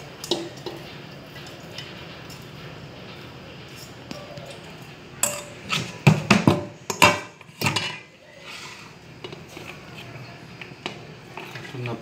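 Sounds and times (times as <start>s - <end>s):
colander banging on metal pot: 0.2s - 0.8s, 5.2s - 8.0s.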